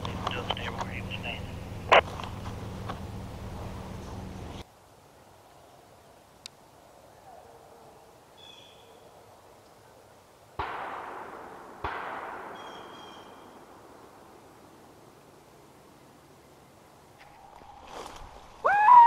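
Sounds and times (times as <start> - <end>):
distant gunshots with echo: 10.6 - 14.8.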